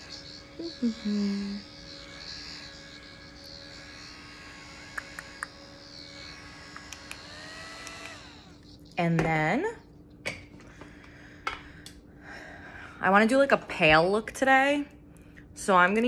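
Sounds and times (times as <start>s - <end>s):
brief steady tone: 0.0s - 3.7s
handheld fan humming: 0.0s - 16.0s.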